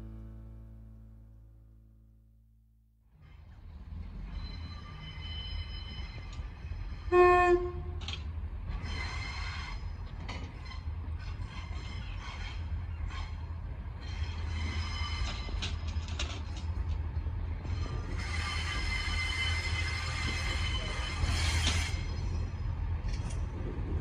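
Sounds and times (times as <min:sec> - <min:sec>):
diesel train engine rumble: 0:03.2 - 0:24.0
train wheels squealing: 0:04.0 - 0:07.1, 0:08.7 - 0:16.3, 0:17.7 - 0:22.8
train horn blast: 0:07.1 - 0:08.0.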